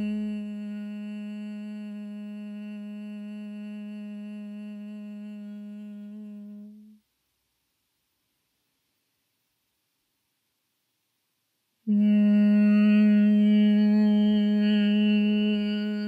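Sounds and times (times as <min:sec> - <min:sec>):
woman humming low note: 0:00.0 - 0:07.0, 0:11.9 - 0:16.0.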